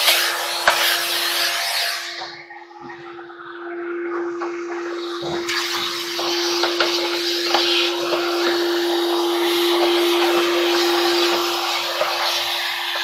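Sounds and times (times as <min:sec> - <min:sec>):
vacuum cleaner running: 0:00.0 - 0:13.0.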